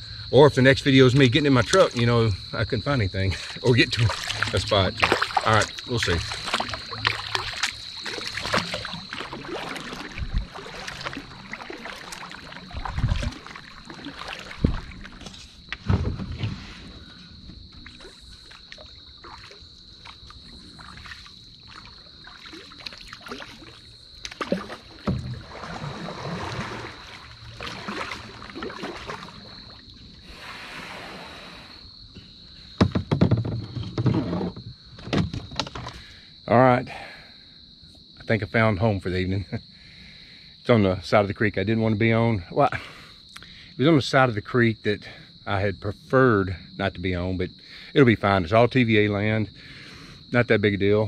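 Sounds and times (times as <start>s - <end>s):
canoe scraping on sandy bank: 0.7s - 34.9s
paddle splashing in water: 3.2s - 31.4s
paddle knocking against hull: 3.9s - 16.6s, 22.8s - 29.5s, 32.8s - 36.0s.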